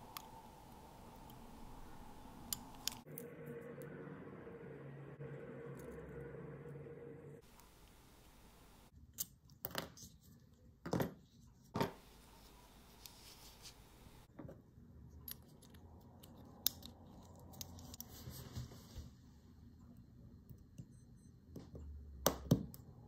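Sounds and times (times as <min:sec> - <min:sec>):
small metallic clicks and scrapes: 0:15.2 - 0:18.1.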